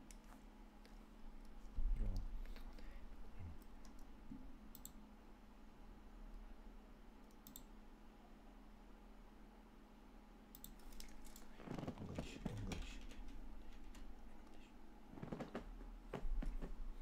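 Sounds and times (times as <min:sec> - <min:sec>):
keyboard and mouse clicks: 0:03.6 - 0:04.1, 0:04.7 - 0:05.0, 0:07.2 - 0:07.7, 0:10.5 - 0:14.6.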